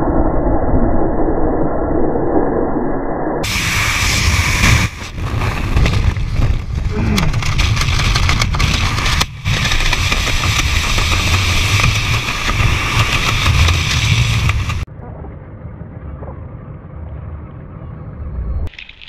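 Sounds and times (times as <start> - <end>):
heavy wind noise on microphone: 3.4 - 14.9.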